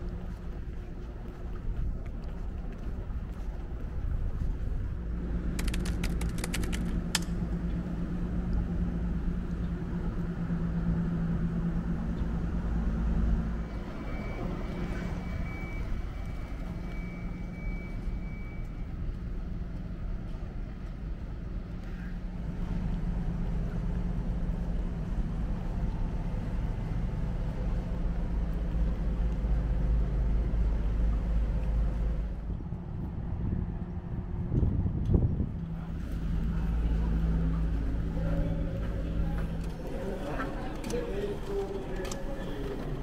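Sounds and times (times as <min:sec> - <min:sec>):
low engine hum: 0:00.0 - 0:43.0
quick clicks: 0:05.5 - 0:07.4.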